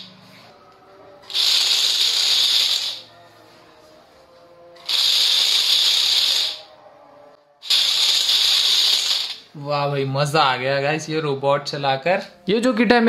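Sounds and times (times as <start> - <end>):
robot drive motors hissing: 1.3 - 3.0, 4.8 - 6.7, 7.6 - 9.4.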